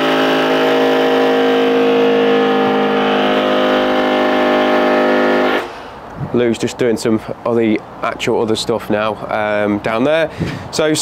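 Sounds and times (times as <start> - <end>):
machine drone: 0.0 - 6.0.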